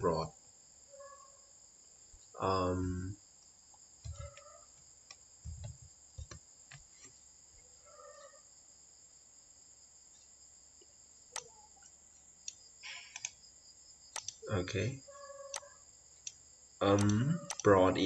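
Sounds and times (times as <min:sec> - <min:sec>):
faint distant calls: 0:00.9 - 0:01.5, 0:04.1 - 0:04.8, 0:07.6 - 0:08.5, 0:14.4 - 0:15.9
faint high-pitched whine: 0:04.1 - 0:18.0
computer keyboard clicks: 0:05.6 - 0:06.8, 0:12.5 - 0:13.4, 0:14.2 - 0:14.4, 0:15.5 - 0:17.7.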